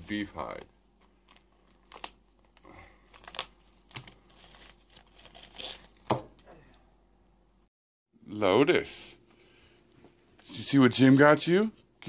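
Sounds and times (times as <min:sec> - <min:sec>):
wrapper crinkling and tearing: 0:01.2 - 0:06.2.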